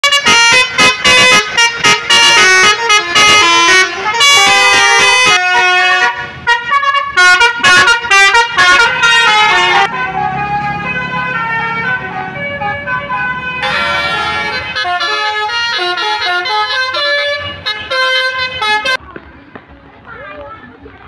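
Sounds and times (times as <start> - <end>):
bus air horns playing tunes: 0.0 - 19.0.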